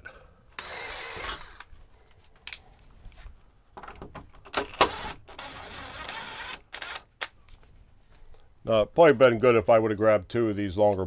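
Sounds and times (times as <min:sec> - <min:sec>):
cordless drill boring through panel: 0:00.6 - 0:01.7, 0:04.8 - 0:07.1.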